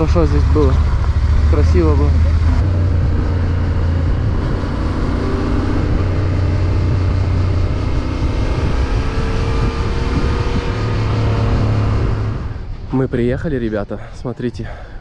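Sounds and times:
motorcycle engine running: 0:00.0 - 0:10.9
wind rushing: 0:02.5 - 0:13.2.

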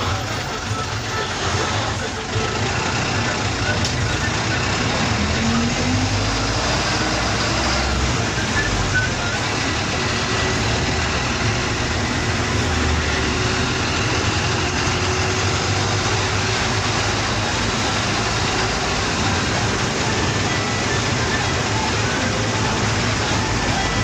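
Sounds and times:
bus engine: 0:00.0 - 0:24.0
road noise: 0:00.0 - 0:24.0.

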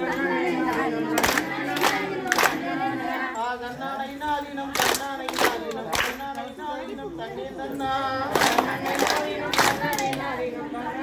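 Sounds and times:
group singing in chorus: 0:00.0 - 0:11.0
sharp hand claps: 0:00.7 - 0:02.6, 0:04.7 - 0:06.4, 0:08.3 - 0:10.2.

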